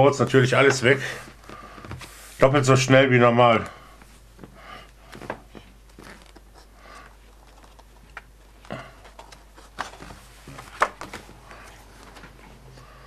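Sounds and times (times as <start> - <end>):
paper pages rustling and turning: 4.0 - 13.0.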